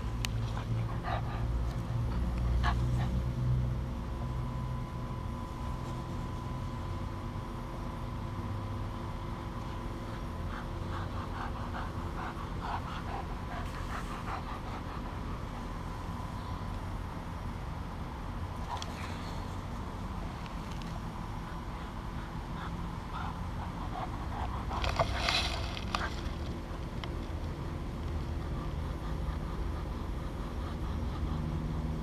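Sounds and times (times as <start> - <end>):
puppy panting: 0.2 - 3.4, 9.3 - 17.3, 20.5 - 26.7, 28.1 - 32.0.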